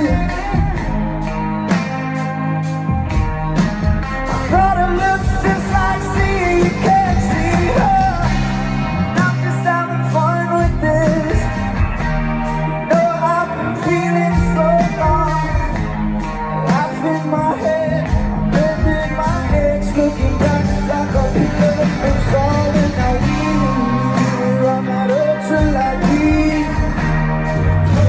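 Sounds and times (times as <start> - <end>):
pop song with singing: 0.0 - 28.0.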